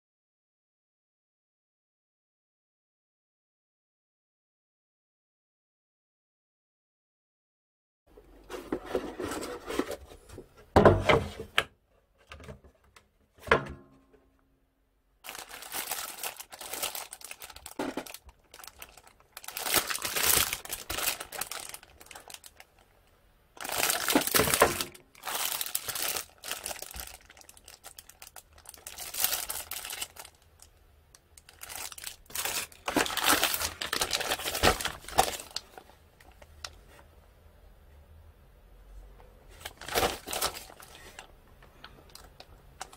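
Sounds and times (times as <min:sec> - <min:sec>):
plastic bags crinkling: 0:15.2 - 0:23.0, 0:23.6 - 0:36.8, 0:39.6 - 0:42.9.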